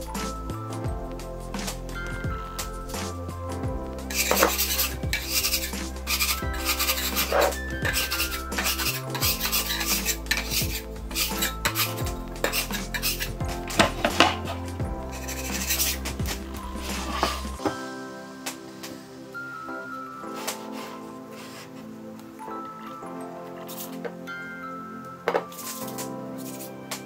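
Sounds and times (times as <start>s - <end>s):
background music: 0.0s - 27.0s
scraper scraping stone countertop: 4.1s - 17.7s.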